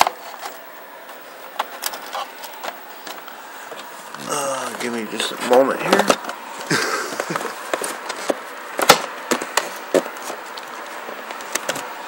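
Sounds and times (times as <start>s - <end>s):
handling clicks and knocks: 4.7s - 6.4s, 7.0s - 12.0s.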